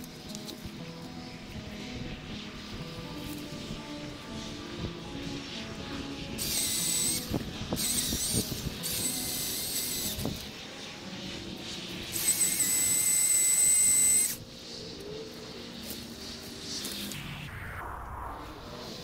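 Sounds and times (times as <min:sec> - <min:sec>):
electric chainsaw cutting tree: 0:06.4 - 0:10.5, 0:12.1 - 0:14.4.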